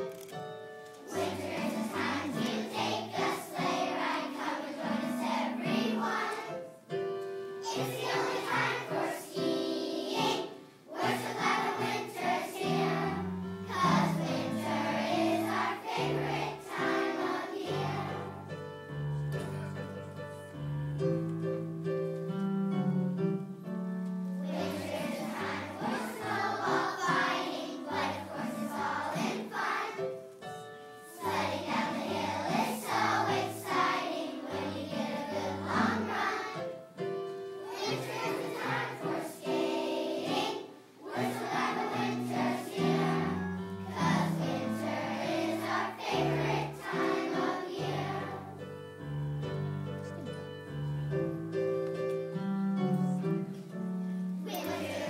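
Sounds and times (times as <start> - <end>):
piano accompaniment: 0.0 - 55.0
children's choir singing: 0.9 - 18.7, 24.3 - 37.0, 37.6 - 48.8, 54.4 - 55.0.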